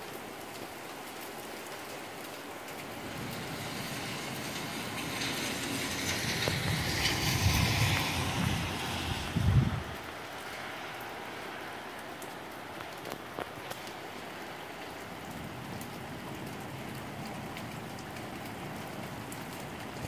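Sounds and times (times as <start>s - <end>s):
steady rain: 0.0s - 20.0s.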